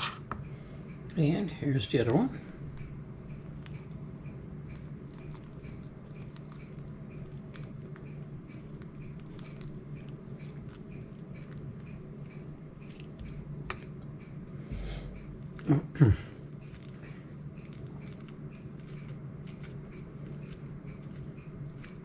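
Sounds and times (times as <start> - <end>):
knife scraping fruit: 0.0 - 0.3
steady low hum: 0.0 - 22.0
faint regular ticking: 2.1 - 14.5.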